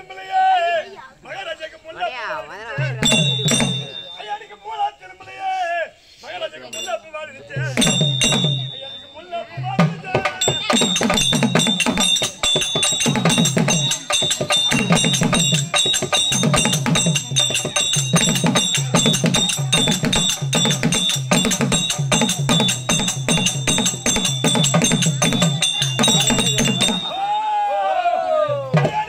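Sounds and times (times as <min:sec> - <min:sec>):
barrel drum beaten in driving rhythm: 0:02.8 - 0:04.3, 0:07.6 - 0:27.2
thin high ringing tone: 0:02.8 - 0:04.8, 0:06.6 - 0:27.5.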